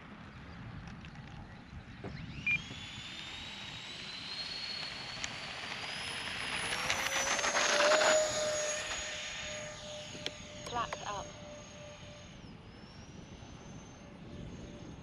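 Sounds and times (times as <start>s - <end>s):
electric ducted fans whining: 0.0s - 15.0s.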